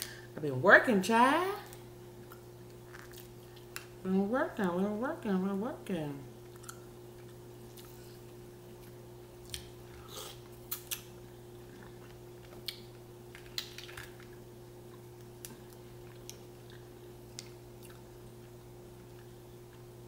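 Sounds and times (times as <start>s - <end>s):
steady low hum: 0.0s - 20.0s
person chewing: 2.2s - 3.9s, 6.4s - 19.9s.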